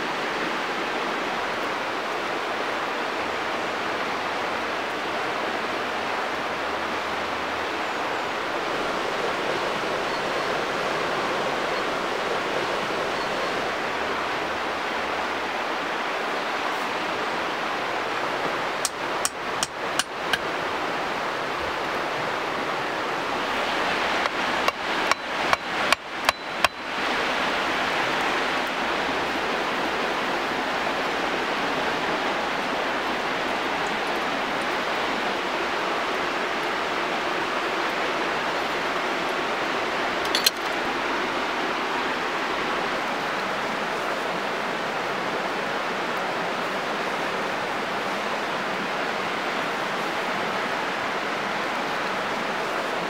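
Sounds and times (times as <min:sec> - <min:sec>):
steady rushing noise: 0:05.6 - 0:53.0
hatchet knocking wooden stake: 0:18.8 - 0:20.4, 0:24.2 - 0:26.8
short clink: 0:40.2 - 0:40.8.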